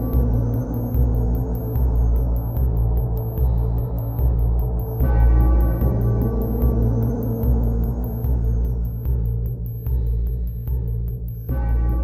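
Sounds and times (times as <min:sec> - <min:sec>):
deep pulsing drone: 0:00.0 - 0:12.0.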